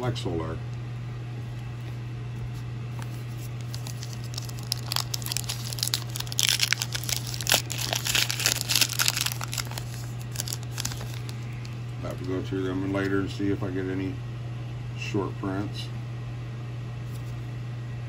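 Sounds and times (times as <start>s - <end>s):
foil wrapper tearing and crinkling: 3.0s - 12.3s.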